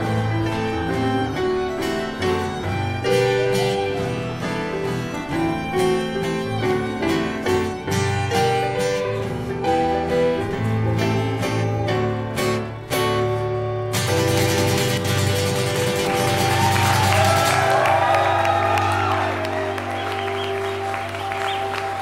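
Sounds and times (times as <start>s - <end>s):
violin melody: 0.0s - 17.1s
acoustic guitar: 0.0s - 22.0s.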